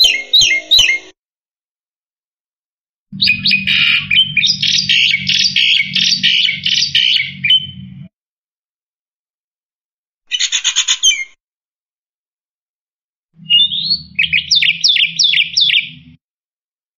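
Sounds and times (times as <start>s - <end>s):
bird singing rapid notes: 0.0s - 1.2s, 3.2s - 8.1s, 13.4s - 16.2s
low hum: 3.2s - 8.1s.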